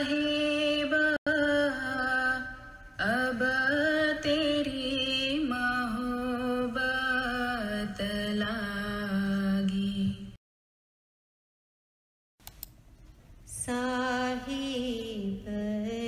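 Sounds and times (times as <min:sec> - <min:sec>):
solo voice singing a hymn: 0:00.0 - 0:10.3.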